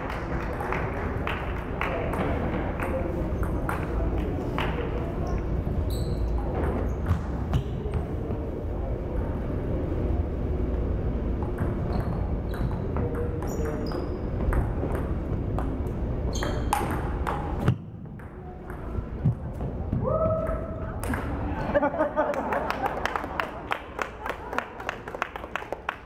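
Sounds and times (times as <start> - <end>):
ping pong ball clicking off paddles: 11.4 - 18.9
ball bouncing on table: 16.4 - 21.4.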